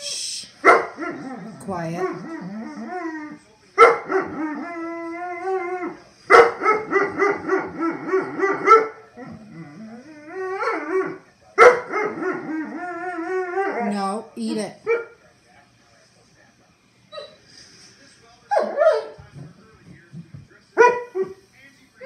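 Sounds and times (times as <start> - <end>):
puppy howling: 0.8 - 14.2, 18.5 - 19.2.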